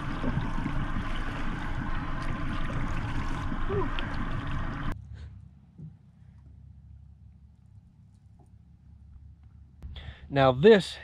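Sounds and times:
boat motor running: 0.0 - 5.0
water rushing: 0.0 - 5.0.

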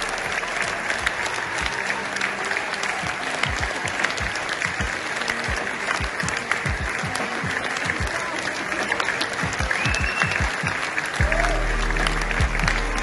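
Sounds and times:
audience applauding: 0.0 - 13.0
music with deep bass beat: 11.2 - 13.0.

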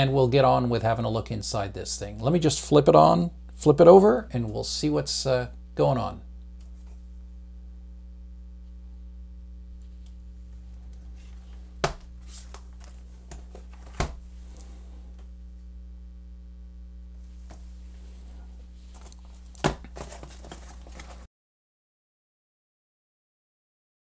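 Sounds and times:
steady electrical hum: 0.0 - 21.3
rustling of hands and packaging: 10.6 - 14.7, 17.4 - 21.3.

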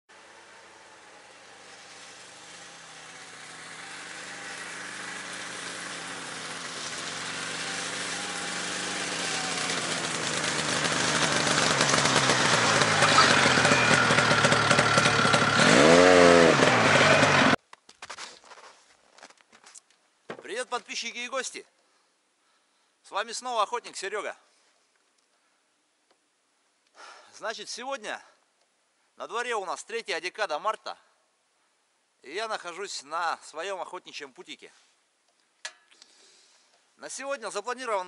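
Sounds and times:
snowmobile engine running: 1.3 - 17.6.

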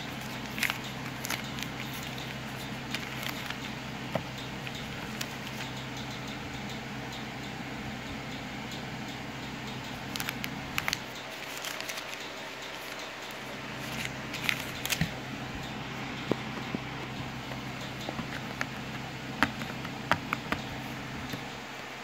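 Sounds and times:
plastic wrap crinkling: 0.0 - 5.7, 10.0 - 15.2
steady low hum: 0.0 - 22.0.

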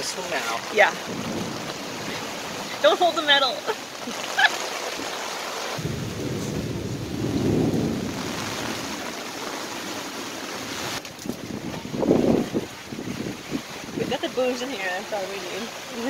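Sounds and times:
heavy rain pouring: 0.0 - 16.0
thunder rumbling: 0.7 - 2.9, 5.8 - 9.9.

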